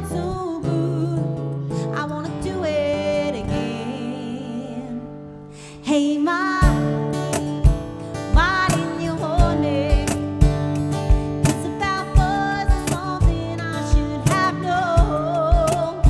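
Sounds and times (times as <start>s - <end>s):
strummed acoustic guitar: 0.0s - 5.5s, 6.4s - 16.0s
woman singing wordless notes: 0.0s - 7.0s, 8.3s - 10.4s, 11.4s - 16.0s
low cajon thumps: 6.6s - 16.0s.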